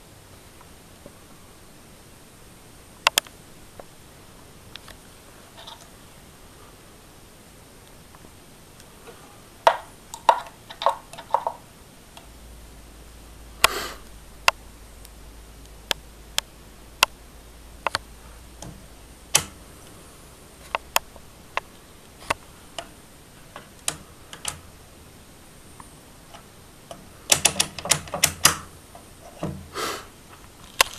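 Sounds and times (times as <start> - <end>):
multimeter button and switch clicks: 18.6 - 19.6.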